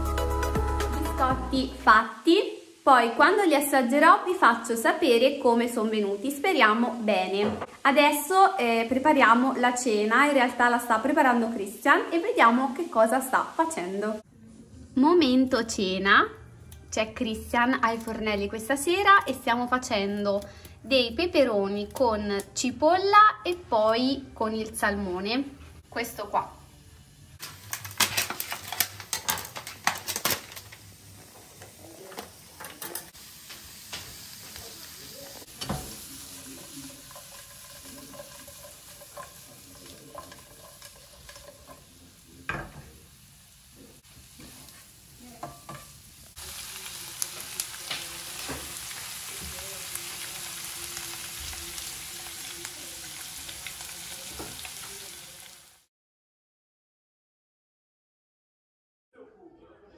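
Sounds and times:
vegetables sizzling in oil: 0.0s - 14.2s, 17.3s - 20.5s, 25.5s - 55.9s
pan and utensils knocking: 27.4s - 30.6s, 35.5s - 41.9s, 45.4s - 46.0s.

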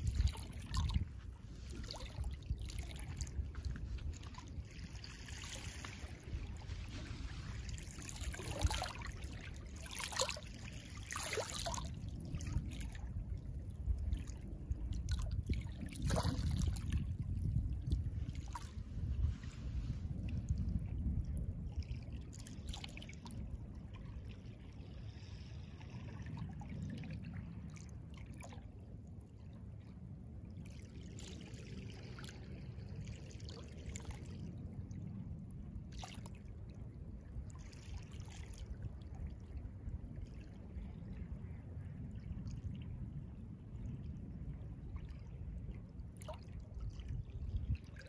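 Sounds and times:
light splashes: 0.0s - 13.1s, 14.0s - 28.6s, 30.6s - 34.5s
small waves lapping: 0.0s - 48.0s
steady low rumble: 0.0s - 48.0s.

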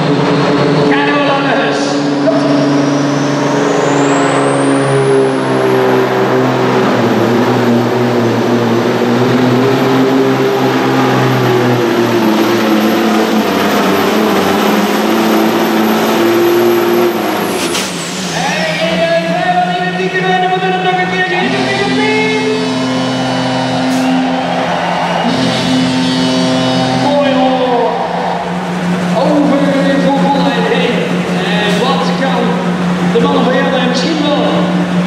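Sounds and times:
diesel truck engine running under load: 0.0s - 35.0s
high whistle: 22.1s - 28.6s.

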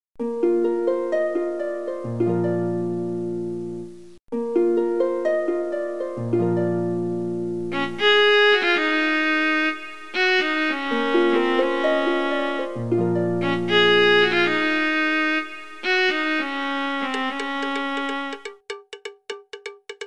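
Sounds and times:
light instrumental melody: 0.2s - 20.0s.

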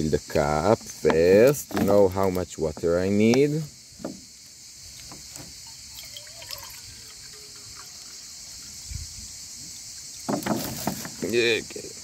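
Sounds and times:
insects hissing: 0.0s - 12.0s
water pouring into metal mug: 5.6s - 8.8s.

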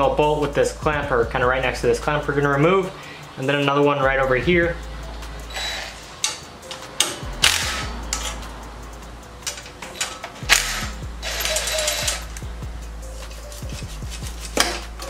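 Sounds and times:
cordless power driver running: 10.5s - 12.2s.

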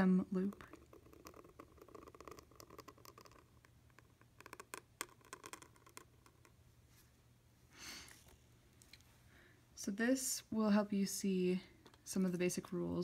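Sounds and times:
metal nib scratching paper: 0.5s - 3.5s.

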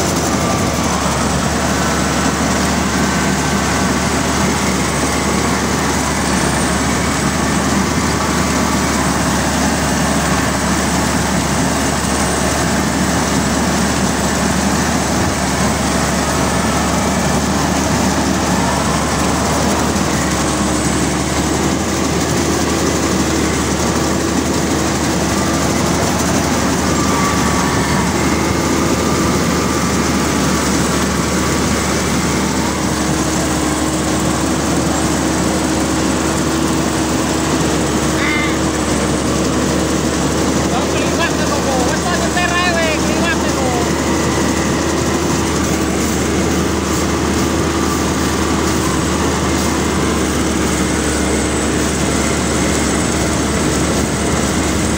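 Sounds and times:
combine harvester running: 0.0s - 54.9s.

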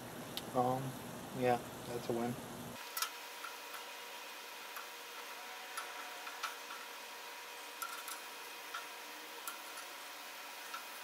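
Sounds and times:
meat frying with pops: 2.8s - 11.0s.

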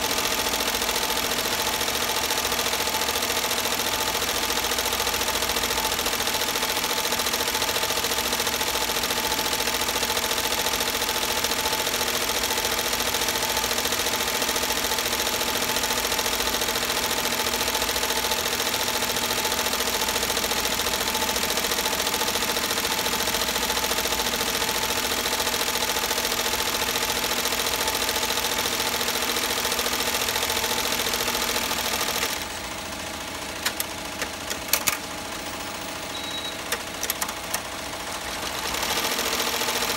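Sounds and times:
embroidery machine stitching: 0.0s - 39.9s
sharp clicks: 33.6s - 35.1s, 36.5s - 37.7s.

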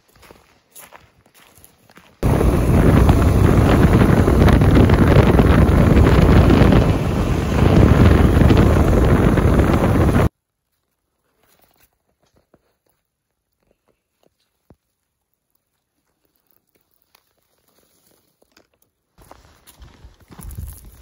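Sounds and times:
footsteps on forest floor: 0.0s - 2.2s, 10.5s - 21.0s
atv engine running: 2.2s - 10.3s
wind buffeting microphone: 2.2s - 10.3s.

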